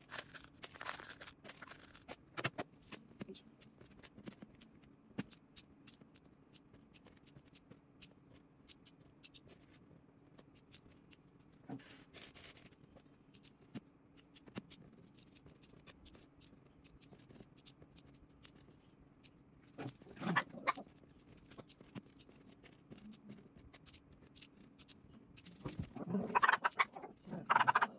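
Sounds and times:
plastic beads clicking: 0.0 - 2.2.

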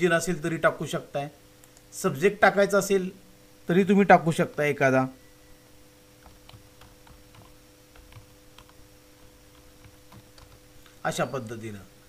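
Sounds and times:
low steady hum: 0.0 - 12.0
typing on computer keyboard: 6.2 - 10.6.

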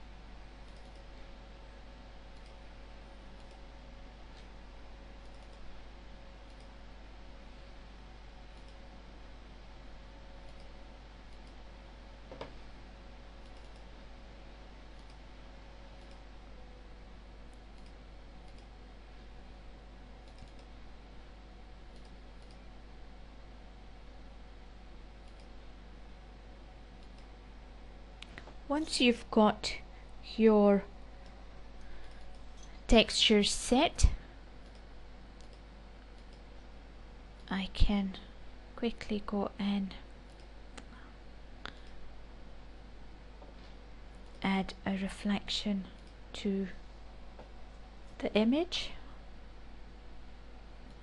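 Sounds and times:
low hiss and hum: 0.0 - 51.0
computer mouse clicks: 0.6 - 1.1, 2.3 - 2.6, 3.4 - 3.6, 5.2 - 5.7, 6.4 - 6.8, 8.5 - 8.9, 10.4 - 11.6, 13.4 - 13.9, 14.9 - 15.2, 16.0 - 16.3, 17.5 - 18.8, 20.2 - 20.7, 21.9 - 22.6, 25.2 - 25.6, 27.0 - 27.3, 31.2 - 32.8, 34.6 - 36.5.

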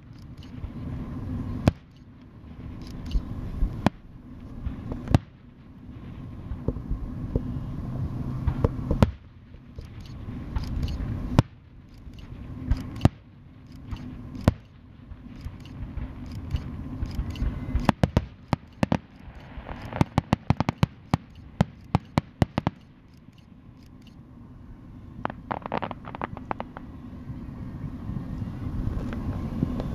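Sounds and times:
distant fireworks bursting: 0.0 - 29.9
fireworks crackles: 8.5 - 23.1, 25.2 - 27.0.

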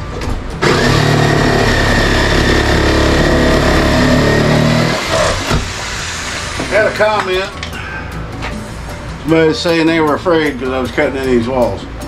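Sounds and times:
power tool motor running: 0.6 - 6.7.

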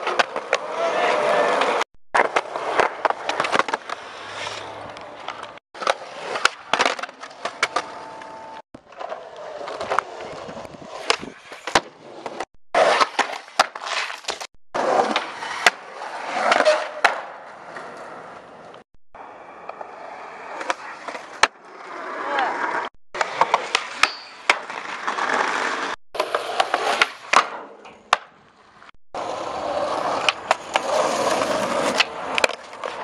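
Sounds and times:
skateboard clacks: 0.0 - 4.0, 4.8 - 18.0, 29.2 - 33.0
skateboard wheels rolling on concrete: 0.0 - 33.0.

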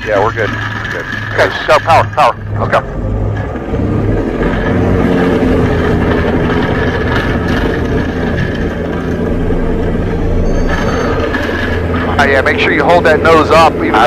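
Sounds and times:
propeller plane engine: 0.0 - 14.0.

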